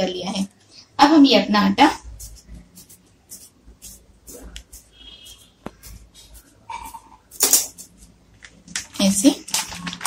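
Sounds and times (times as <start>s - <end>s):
plastic sheet rustling and crinkling: 5.7s - 10.0s.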